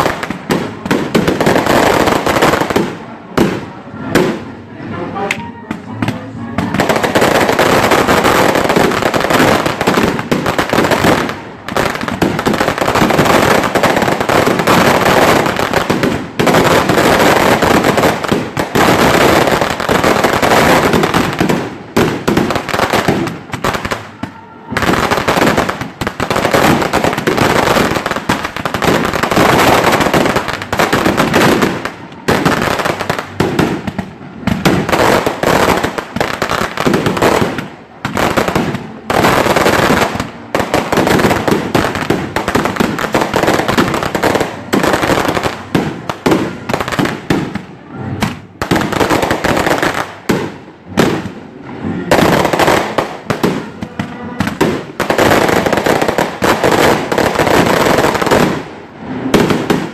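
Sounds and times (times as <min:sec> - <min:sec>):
fireworks bangs and crackling: 0:00.0 - 0:59.9.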